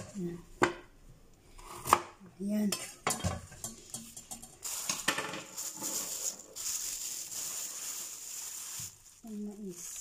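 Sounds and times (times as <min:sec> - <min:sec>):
plastic bag rustling: 0:04.6 - 0:10.0.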